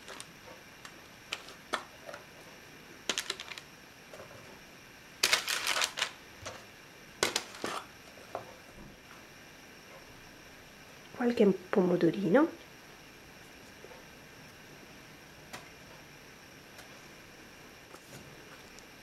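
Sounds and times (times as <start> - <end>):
parchment crinkling: 3.1 - 3.7, 5.2 - 6.2.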